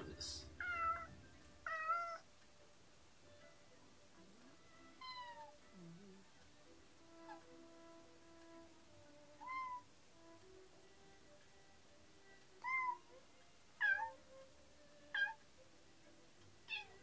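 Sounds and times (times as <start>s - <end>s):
faint background music: 0.0s - 17.0s
cat meowing: 0.6s - 2.3s, 5.0s - 5.9s, 9.4s - 9.9s, 12.6s - 13.2s, 13.8s - 14.3s, 15.1s - 15.4s, 16.6s - 17.0s.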